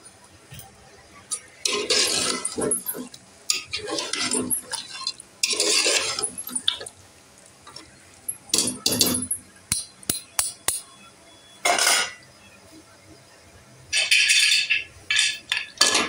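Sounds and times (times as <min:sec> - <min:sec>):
ladle scraping in pot: 0:01.6 - 0:06.9.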